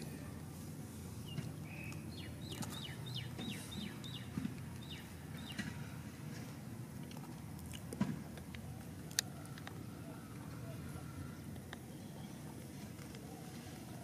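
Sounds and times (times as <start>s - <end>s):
small bird chirping: 1.2s - 5.7s.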